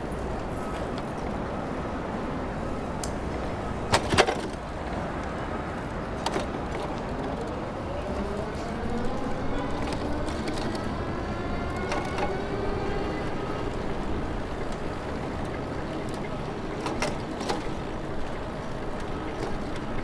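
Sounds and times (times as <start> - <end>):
traffic rush: 0.0 - 20.0
wind: 0.0 - 20.0
vehicle engine accelerating: 7.4 - 15.1.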